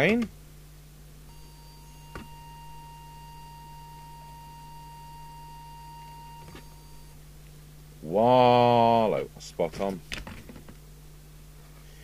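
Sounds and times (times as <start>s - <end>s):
pure test tone: 1.3s - 7.2s
clicks: 2.1s - 2.5s.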